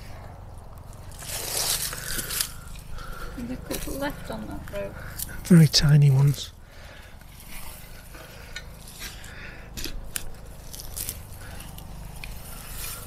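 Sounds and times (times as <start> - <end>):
garden fork scraping through soil: 1.1 - 2.9, 7.2 - 13.0.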